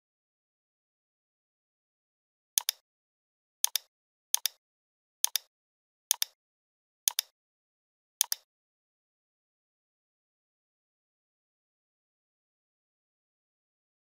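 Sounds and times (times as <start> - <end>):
computer mouse button clicks: 2.6 - 2.8, 3.6 - 4.6, 5.2 - 5.5, 6.1 - 6.4, 7.1 - 7.3, 8.2 - 8.5.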